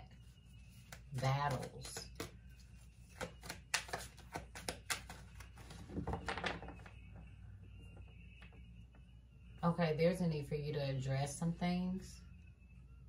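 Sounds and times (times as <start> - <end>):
cards shuffled by hand: 0.8 - 6.8.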